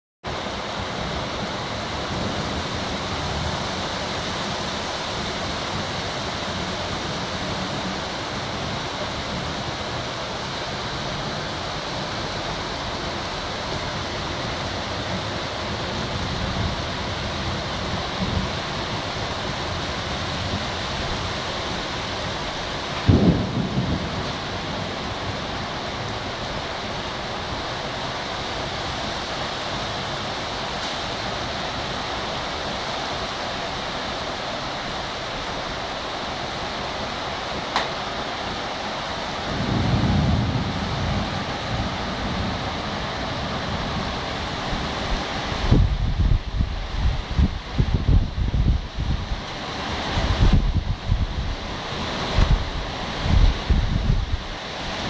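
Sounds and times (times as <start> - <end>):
heavy rain pouring: 0.2 - 55.0
trees tossing in wind: 0.3 - 55.0
loud low rumbling burst: 23.1 - 24.0.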